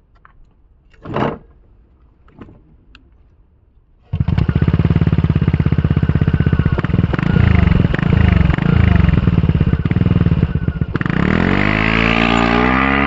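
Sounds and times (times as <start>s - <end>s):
scooter engine starting and idling: 4.0s - 13.0s.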